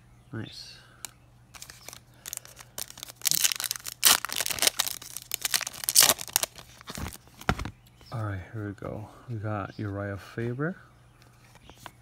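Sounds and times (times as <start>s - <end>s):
foil wrapper crinkling and tearing: 1.5s - 7.2s.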